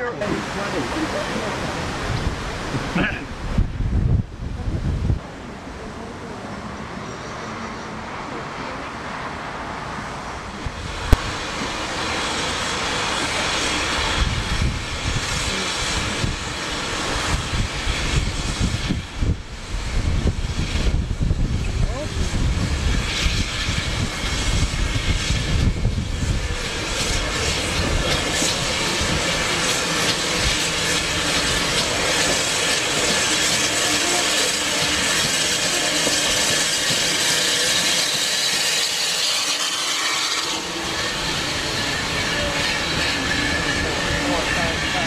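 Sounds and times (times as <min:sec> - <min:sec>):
steam locomotive rumble: 0:00.0 - 0:45.0
steam hissing: 0:10.2 - 0:45.0.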